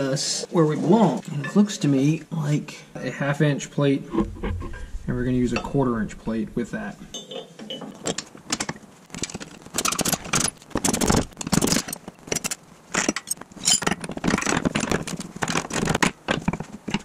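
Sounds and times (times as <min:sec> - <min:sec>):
metal parts clinking and scraping: 0:07.2 - 0:15.2.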